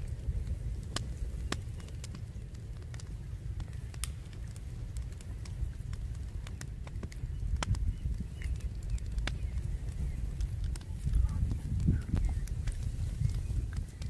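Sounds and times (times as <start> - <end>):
campfire crackling: 0.0 - 14.0
wind rumble on microphone: 0.0 - 14.0
sticks snapping and popping: 2.8 - 14.0.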